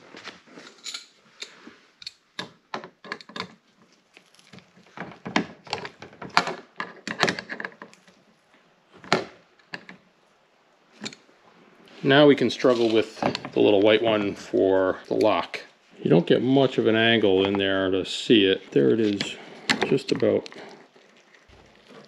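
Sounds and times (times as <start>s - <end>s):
metal parts clicking and tapping: 0.6s - 3.6s.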